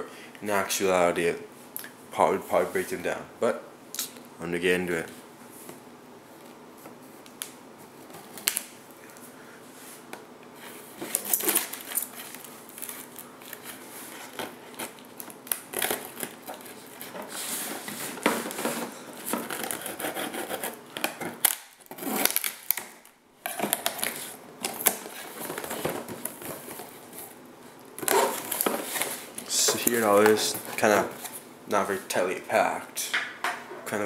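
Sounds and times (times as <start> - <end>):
knife scraping cardboard: 17.3 - 20.8.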